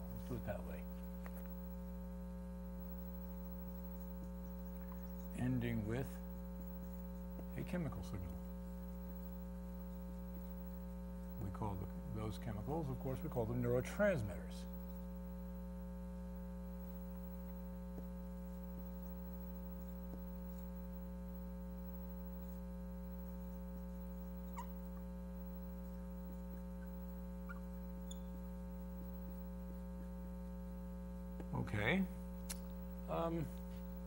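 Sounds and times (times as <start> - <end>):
electrical mains hum: 0.0 - 34.0
marker squeaking on whiteboard: 3.4 - 8.4, 18.4 - 20.8, 21.9 - 25.1, 25.8 - 28.4.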